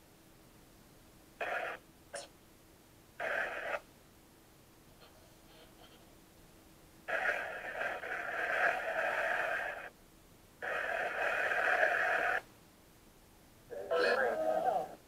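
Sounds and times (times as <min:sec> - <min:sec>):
radio hiss from small speaker: 0:01.4 - 0:02.4, 0:03.2 - 0:03.9, 0:07.0 - 0:10.0, 0:10.6 - 0:12.5, 0:13.7 - 0:15.0.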